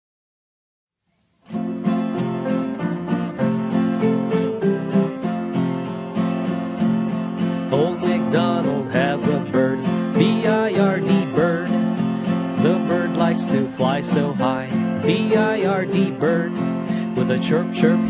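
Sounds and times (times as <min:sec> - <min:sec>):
strummed acoustic guitar: 0:01.4 - 0:18.0
person singing: 0:07.6 - 0:18.0.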